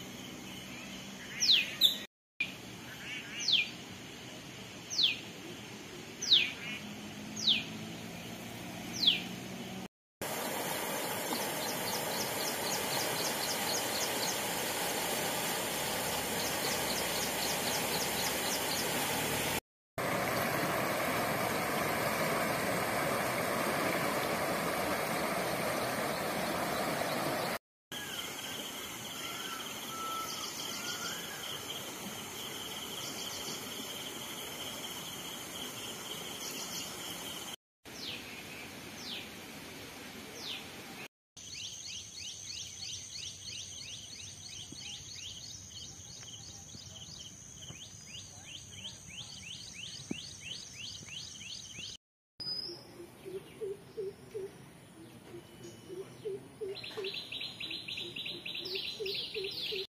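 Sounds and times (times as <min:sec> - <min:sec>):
birds chirping: 0:00.2 - 0:02.1, 0:06.2 - 0:09.4, 0:10.3 - 0:38.2, 0:41.5 - 0:59.9
flowing water: 0:10.2 - 0:27.6, 0:28.3 - 0:38.1.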